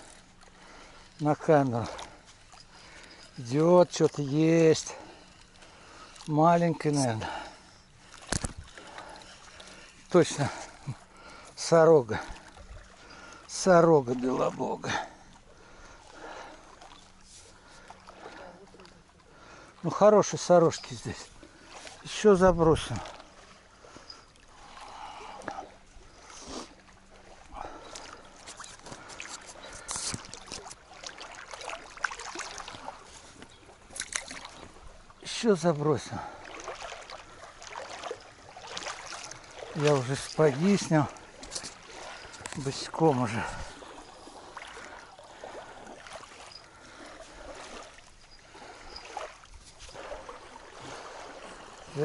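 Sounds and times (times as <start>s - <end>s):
water lapping against boat hull: 0.0s - 52.0s
fishing tackle clicks and rustles: 8.1s - 11.0s, 27.9s - 31.4s, 32.3s - 34.8s, 39.6s - 44.1s.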